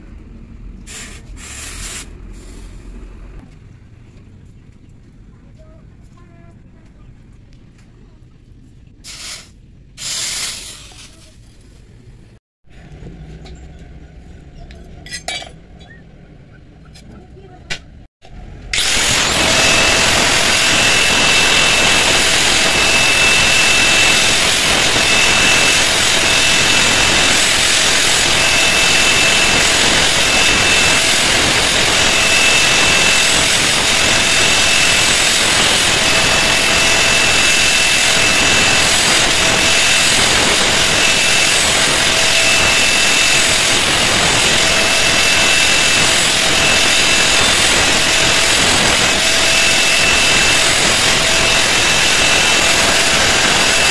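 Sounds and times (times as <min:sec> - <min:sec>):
angle grinder grinding metal: 0:18.7 - 0:53.9.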